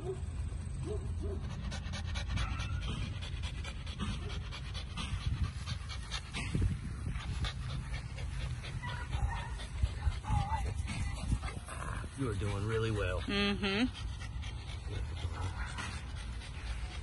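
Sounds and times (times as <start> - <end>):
puppy panting: 0.0 - 17.0.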